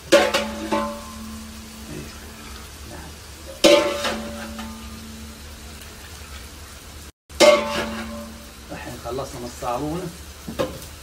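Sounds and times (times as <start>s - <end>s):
metal jug clanking on pot: 0.0s - 2.0s, 3.5s - 5.2s, 7.3s - 8.4s
broth pouring into pot: 0.0s - 11.0s.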